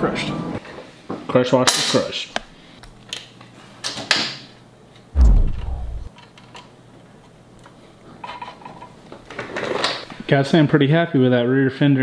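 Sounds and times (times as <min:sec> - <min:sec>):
loud low boom: 0:05.2 - 0:06.1.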